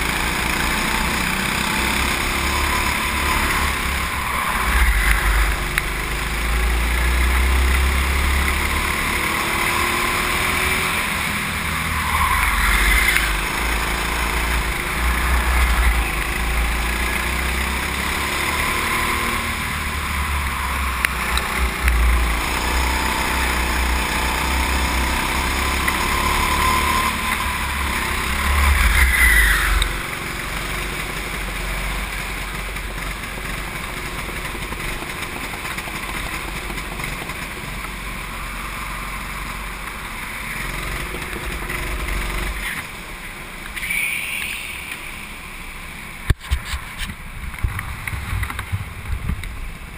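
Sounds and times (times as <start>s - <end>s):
go-kart engine accelerating: 0.0s - 49.9s
wind rumble on microphone: 46.4s - 49.9s.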